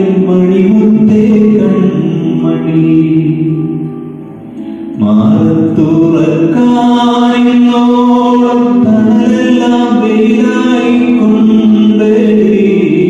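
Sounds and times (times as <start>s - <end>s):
man singing slow melody: 0.0s - 13.0s.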